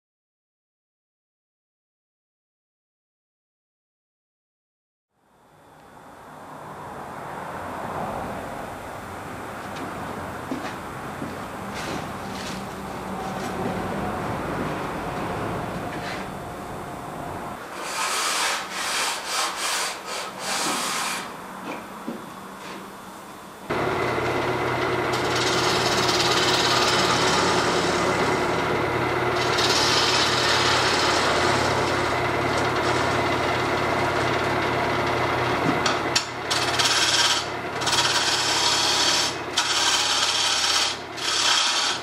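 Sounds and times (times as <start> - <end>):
gouge scraping spinning wood: 17.7 - 21.3, 23.7 - 42.0
lathe motor hum: 23.7 - 42.0.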